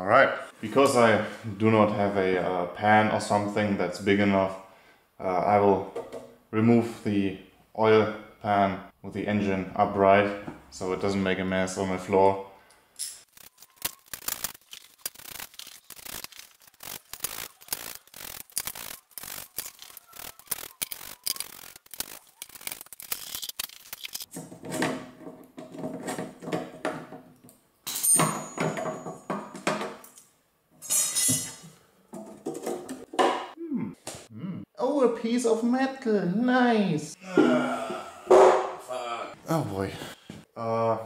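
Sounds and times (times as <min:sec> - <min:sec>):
screwdriver prying and scraping metal: 0:13.0 - 0:24.9
ringing metal: 0:27.9 - 0:29.3.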